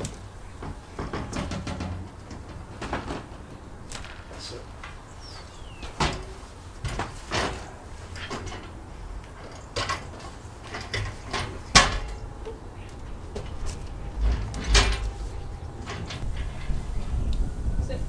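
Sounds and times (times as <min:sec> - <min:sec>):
metal roof rack knocks and clanks: 0:00.0 - 0:05.0, 0:05.6 - 0:12.4, 0:13.0 - 0:17.2.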